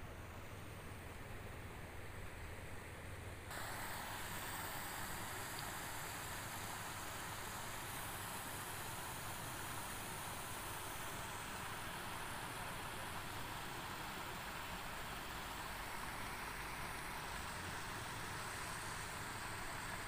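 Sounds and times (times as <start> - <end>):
water rushing in small cascade: 3.5 - 20.0.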